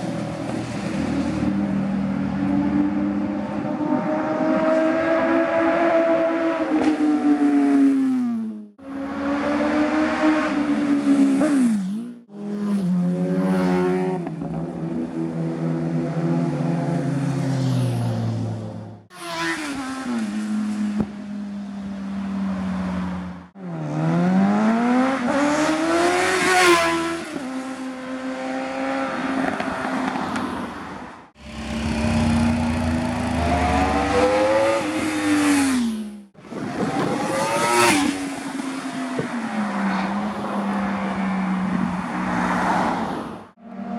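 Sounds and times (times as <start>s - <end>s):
motorcycles passing by: 31.4s - 43.9s.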